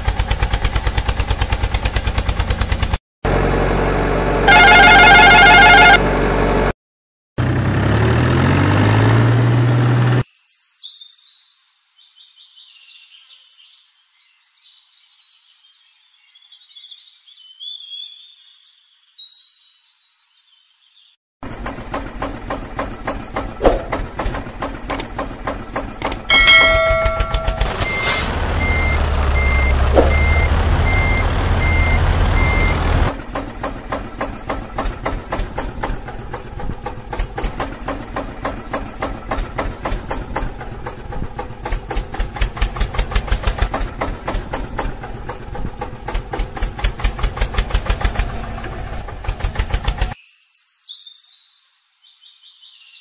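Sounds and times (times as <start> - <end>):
tractor engine chugging: 0.0 - 6.3, 21.4 - 50.2
horn blast: 4.4 - 6.3
reversing beeps: 26.9 - 32.8.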